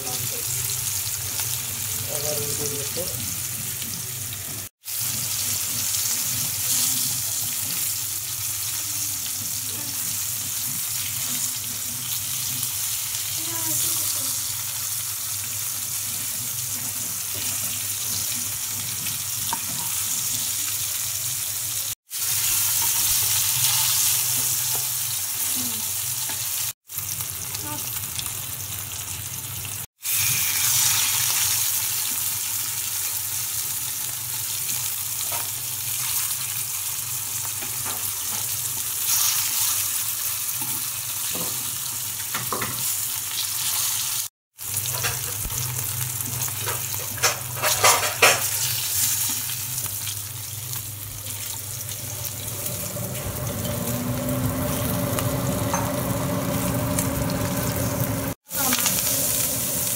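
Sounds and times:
fish sizzling in hot oil: 0:00.0 - 0:59.9
low hum: 0:51.9 - 0:59.9.

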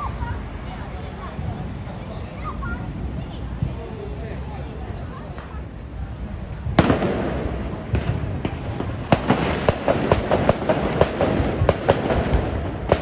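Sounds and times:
street noise: 0:00.0 - 0:13.0
firecrackers banging: 0:05.1 - 0:13.0.

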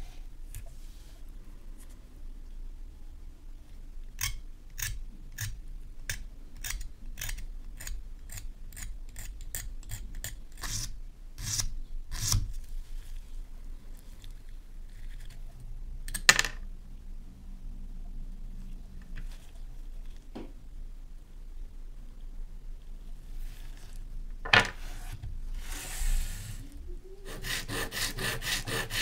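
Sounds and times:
sandpaper rubbing on brass: 0:27.2 - 0:29.0.

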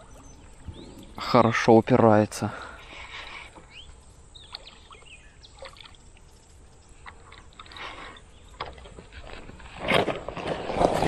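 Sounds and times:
faint bird chirps: 0:00.0 - 0:01.5, 0:03.3 - 0:08.8
water splashing: 0:04.4 - 0:09.3.

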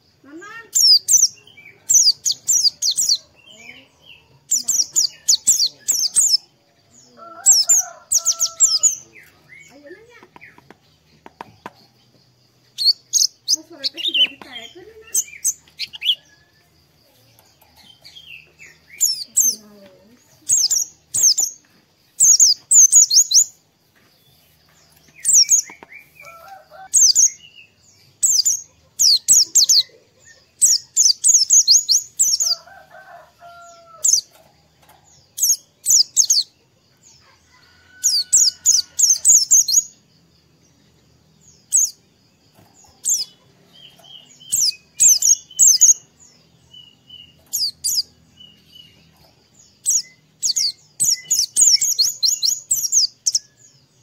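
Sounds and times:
high-pitched bird twittering: 0:00.0 - 0:10.6, 0:12.7 - 0:16.6, 0:17.4 - 0:21.6, 0:22.2 - 0:23.6, 0:25.2 - 0:32.7, 0:33.4 - 0:34.4, 0:35.3 - 0:36.5, 0:37.9 - 0:40.0, 0:41.6 - 0:42.0, 0:42.8 - 0:53.5.

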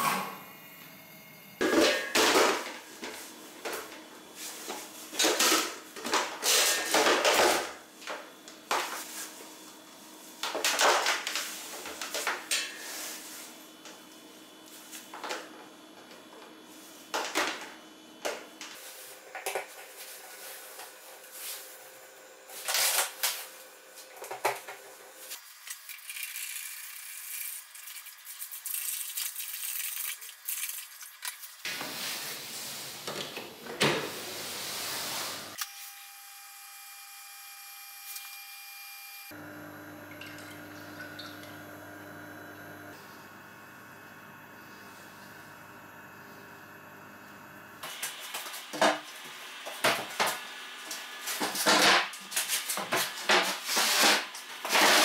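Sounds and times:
coolant running into a tub: 0:25.4 - 0:31.6, 0:40.0 - 0:41.6.

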